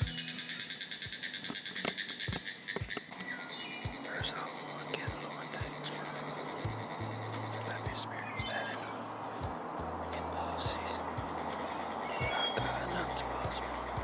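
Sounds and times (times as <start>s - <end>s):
bird chirps: 0.0s - 14.0s
insects droning and chirping: 0.0s - 14.0s
soft low thumps: 6.6s - 8.6s, 9.3s - 14.0s.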